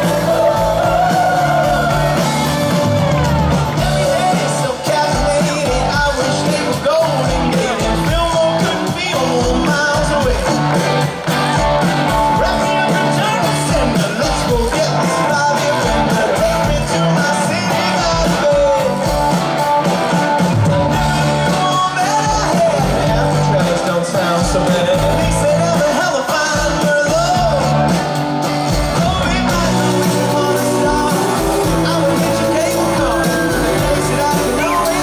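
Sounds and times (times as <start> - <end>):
drum beat: 0.0 - 35.0
lead singer vocal: 0.0 - 35.0
live pop-rock band: 0.0 - 35.0.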